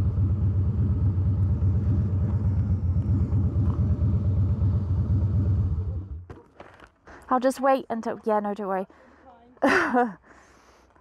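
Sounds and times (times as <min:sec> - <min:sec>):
motorcycle engine idling: 0:00.0 - 0:06.2.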